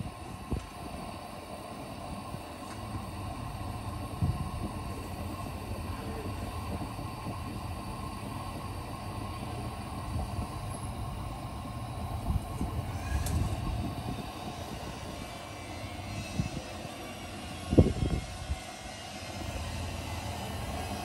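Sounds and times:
lantern burner hissing: 0.0 - 21.0.

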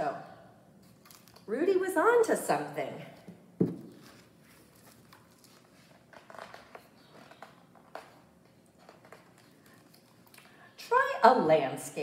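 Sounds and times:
soft paper rustles: 3.9 - 10.6.

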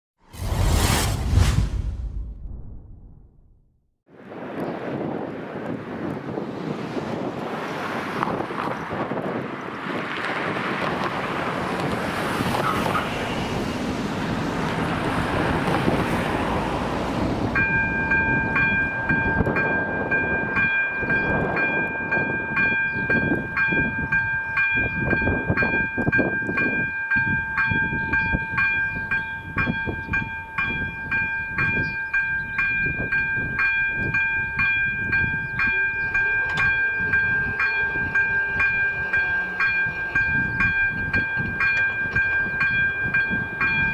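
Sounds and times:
wind on microphone: 4.2 - 43.9
passing cars: 5.1 - 24.1, 36.1 - 43.9
level crossing warning bell: 17.5 - 43.9.

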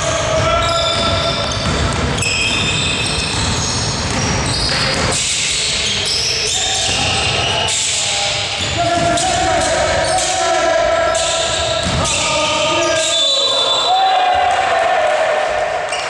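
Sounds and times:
sneaker squeaks on floor: 0.0 - 10.3
basketball bouncing: 0.2 - 5.4, 11.2 - 12.2.

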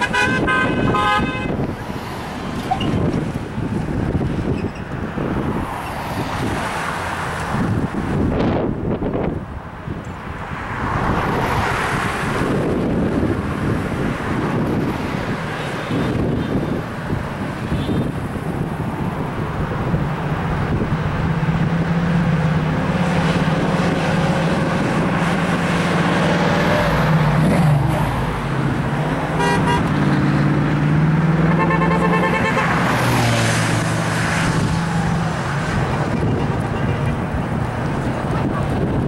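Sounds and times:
car horns tooting: 0.0 - 1.7, 17.6 - 18.2, 29.4 - 30.0, 31.5 - 33.1
cars and trucks passing: 0.0 - 39.0.

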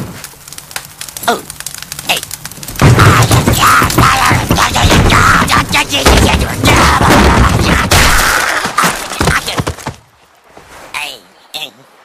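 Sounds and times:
cartoon explosions: 2.1 - 8.8.

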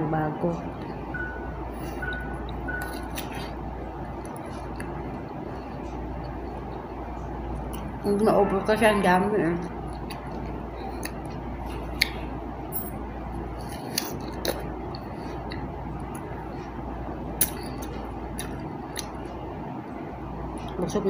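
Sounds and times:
low hum: 0.0 - 21.0
biting and chewing crisp fruit: 1.9 - 8.0, 9.8 - 12.4, 13.4 - 19.5.

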